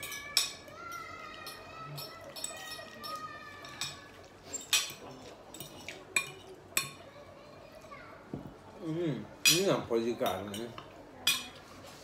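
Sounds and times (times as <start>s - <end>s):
metal fork clinking on plate: 0.0s - 0.6s, 1.5s - 7.0s, 9.5s - 11.6s.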